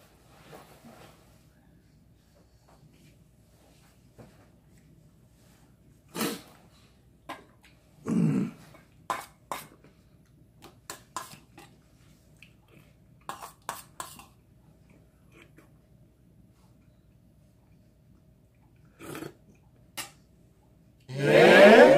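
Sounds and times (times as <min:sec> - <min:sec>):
man clearing his throat: 0:08.0 - 0:08.7.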